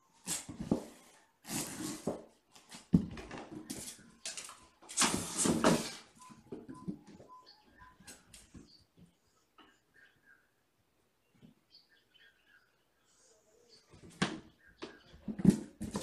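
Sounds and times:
kittens scuffling on hard floor: 15.2 - 16.0.

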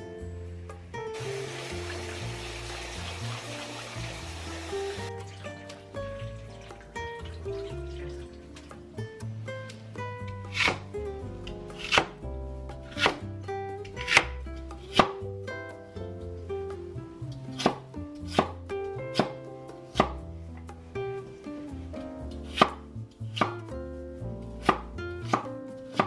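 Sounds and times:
soft background music: 0.0 - 26.0
cleaver chopping on wooden board: 11.8 - 12.1, 12.9 - 13.2, 14.0 - 15.2, 17.6 - 18.6, 19.2 - 19.4, 20.0 - 20.2, 24.6 - 26.0.

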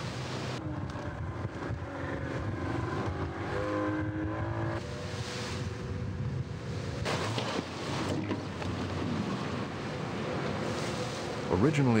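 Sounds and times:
rushing water: 0.0 - 1.0, 6.9 - 12.0
outboard motor running at speed: 0.0 - 11.8
wind: 0.0 - 12.0.

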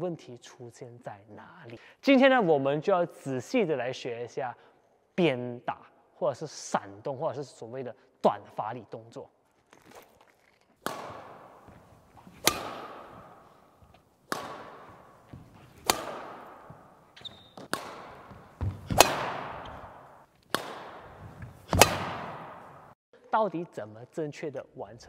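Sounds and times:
badminton racket smash cracks: 10.8 - 23.0.

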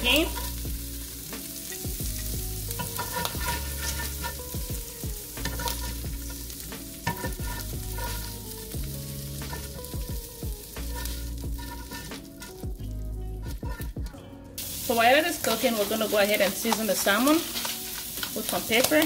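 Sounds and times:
shrimp sizzling in oil: 0.0 - 19.0
spatula scraping pan: 2.2 - 10.0, 10.7 - 12.7, 13.4 - 14.1.

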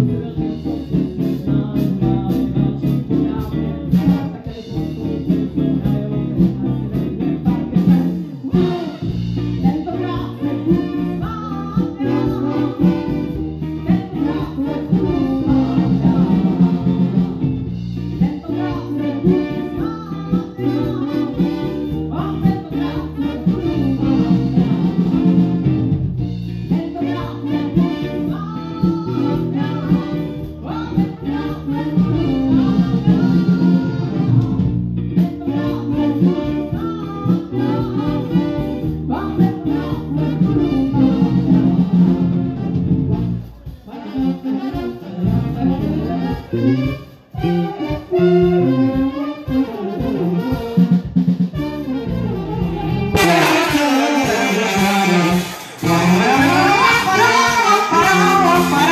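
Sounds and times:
woman singing into a microphone: 0.0 - 17.4, 18.1 - 25.7, 26.6 - 42.8, 43.8 - 50.8, 51.8 - 58.9
brass band playing: 0.0 - 58.9
drums: 0.0 - 58.9
guitar: 0.0 - 58.9
cymbals: 46.7 - 58.9.

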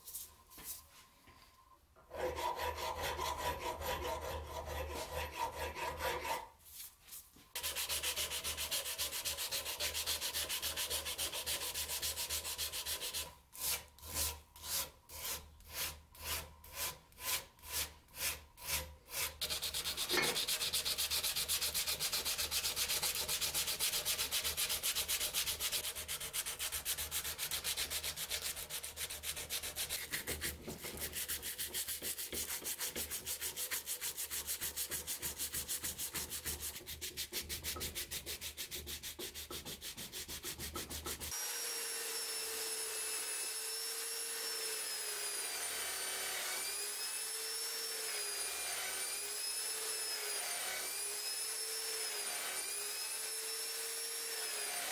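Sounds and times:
sandpaper scratching metal: 2.2 - 7.0, 7.6 - 41.4.

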